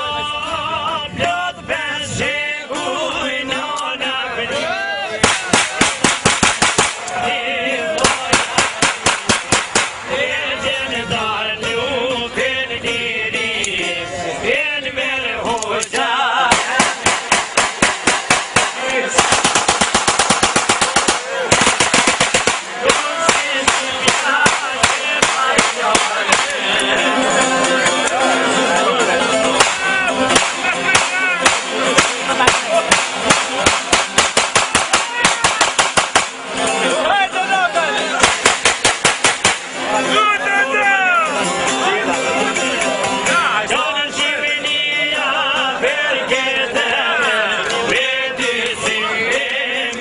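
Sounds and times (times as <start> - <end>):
man singing with wavering notes: 0.0 - 5.2, 7.0 - 8.6, 10.0 - 17.0, 22.7 - 30.9, 39.8 - 50.0
rapid gunfire: 5.2 - 7.1, 8.0 - 10.1, 16.5 - 26.7, 29.6 - 36.5, 38.2 - 39.8
plucked long-necked lutes: 22.5 - 38.3.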